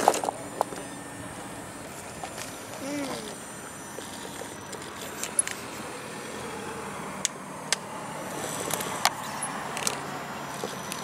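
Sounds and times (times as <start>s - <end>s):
electric motor whirring: 0.0s - 7.4s.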